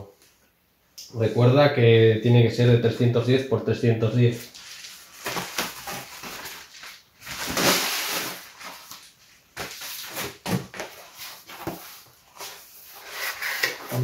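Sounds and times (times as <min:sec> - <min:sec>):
paper wrapper rustling: 0:04.4 - 0:14.0.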